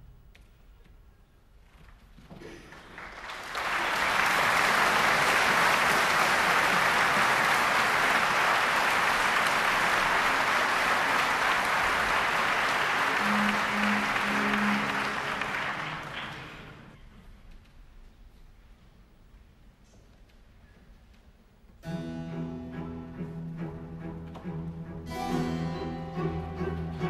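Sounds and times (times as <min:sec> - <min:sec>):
audience applause: 0:02.6 - 0:17.0.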